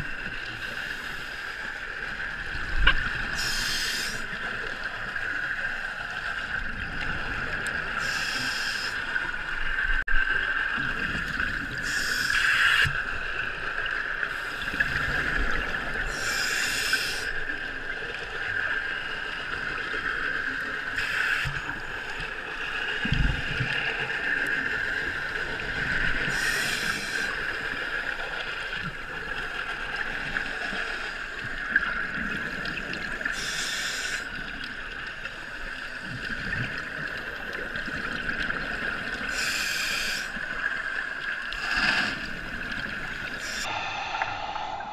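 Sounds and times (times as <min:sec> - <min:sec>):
underwater hiss: 0:00.4 - 0:01.8, 0:03.0 - 0:04.5, 0:07.5 - 0:09.8, 0:11.6 - 0:13.3, 0:14.2 - 0:17.6, 0:20.6 - 0:28.6, 0:29.9 - 0:34.7, 0:39.2 - 0:44.9
regulator air and bubbles: 0:35.7 - 0:44.9.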